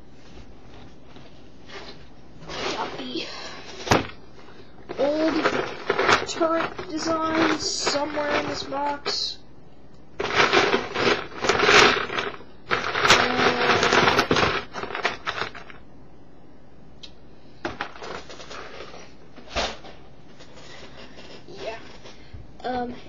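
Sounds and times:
plastic blocks rattling: 0:02.5 - 0:04.2, 0:04.8 - 0:09.4, 0:10.2 - 0:15.8, 0:17.7 - 0:19.0
plastic pieces clicking: 0:04.9 - 0:09.2, 0:10.2 - 0:15.8.

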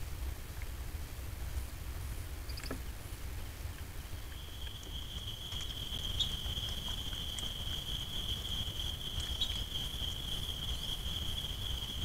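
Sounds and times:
insect trilling: 0:02.5 - 0:02.8, 0:04.2 - 0:12.0.

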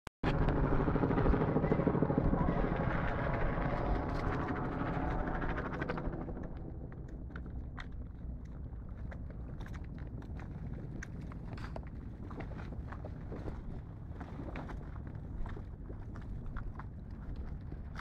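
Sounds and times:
motor pulsing: 0:00.2 - 0:08.4.

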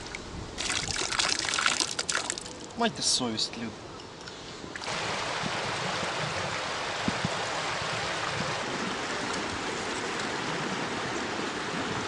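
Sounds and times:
river water rushing over rocks: 0:04.7 - 0:12.0.

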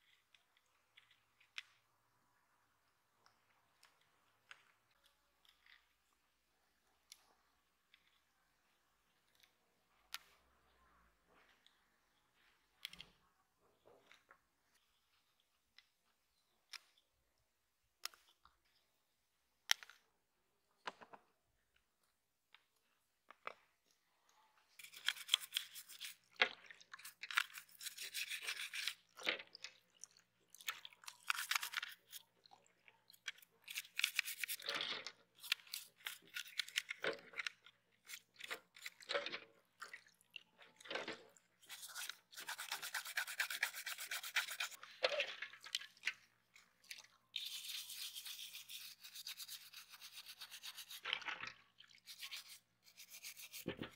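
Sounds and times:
toothbrush scrubbing plastic: 0:24.8 - 0:39.1, 0:41.6 - 0:44.9, 0:45.5 - 0:53.9.

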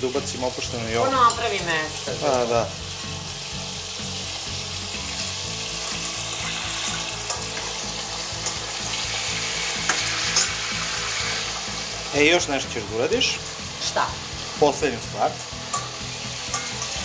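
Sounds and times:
fish frying in oil: 0:00.0 - 0:17.0
spoon clinking against pan: 0:07.3 - 0:07.6, 0:15.7 - 0:17.0.

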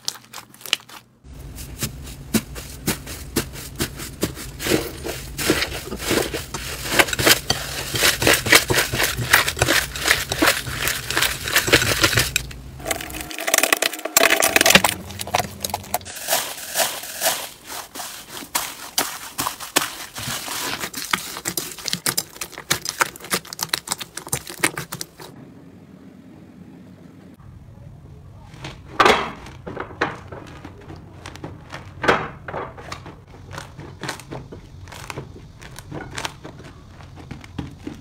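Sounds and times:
slime crackling and popping: 0:00.0 - 0:01.1, 0:06.8 - 0:25.4.

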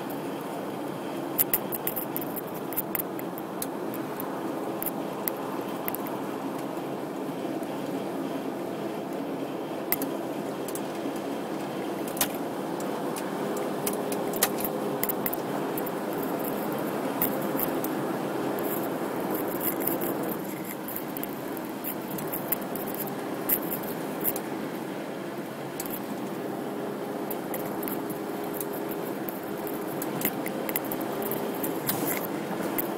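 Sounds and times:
car road and engine noise: 0:00.0 - 0:32.9
small clicks: 0:01.4 - 0:04.2, 0:27.3 - 0:32.9.

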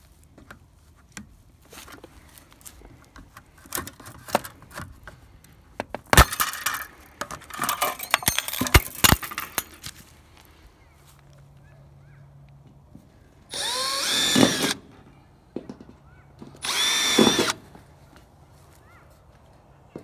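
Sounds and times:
sharp metallic clicks and clinks: 0:06.2 - 0:09.9.

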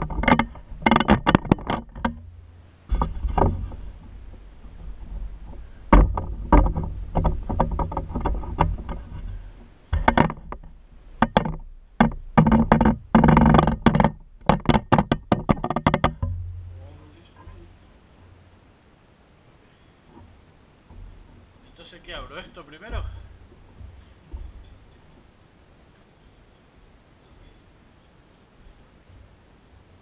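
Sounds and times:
microphone handling knocks and rubbing: 0:00.0 - 0:17.9, 0:20.1 - 0:25.3
low rumble: 0:16.2 - 0:18.8.

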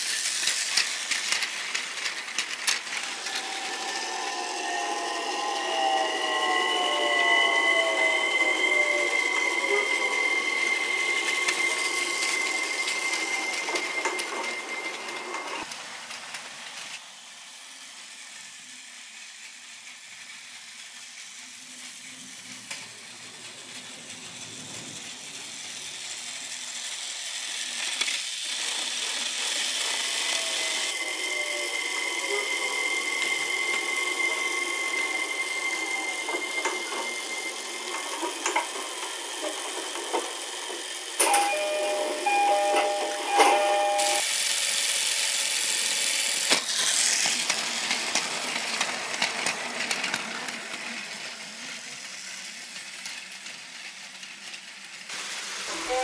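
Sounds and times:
toy train motors whirring: 0:00.0 - 0:56.0
thin whine: 0:01.3 - 0:15.7, 0:30.5 - 0:44.2.

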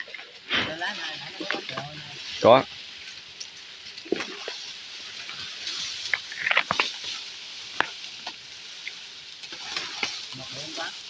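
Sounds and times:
steady high hiss: 0:00.0 - 0:11.0
twigs and leaves crackling: 0:00.0 - 0:11.0.

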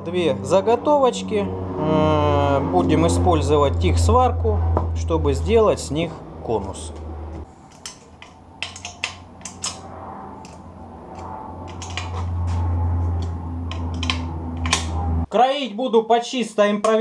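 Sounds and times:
steady low hum: 0:00.0 - 0:15.3
spanner clicking on metal nuts: 0:07.7 - 0:09.8, 0:13.7 - 0:15.0.

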